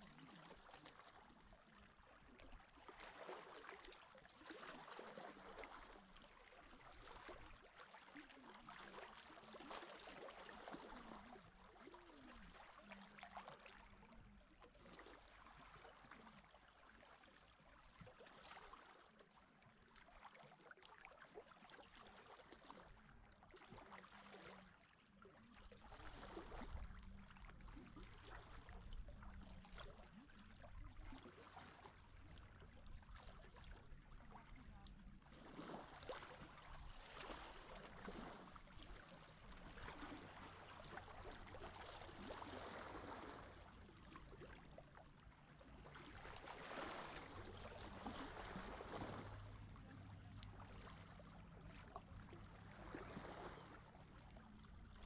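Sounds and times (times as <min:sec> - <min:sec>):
small waves washing onto shore: 0:45.9 - 0:51.9.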